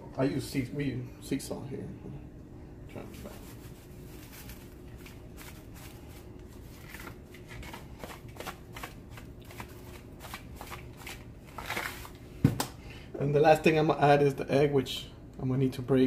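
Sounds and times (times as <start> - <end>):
salt rattling in shaker: 3.1 - 12.2.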